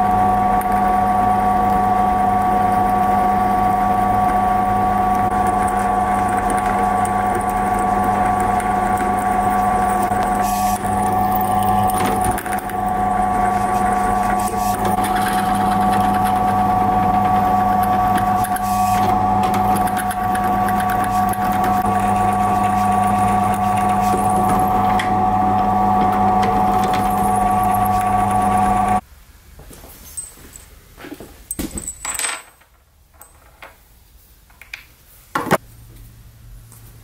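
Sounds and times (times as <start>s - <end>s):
drill press motor hum: 0.0s - 29.0s
drill bit scraping steel: 2.4s - 29.0s.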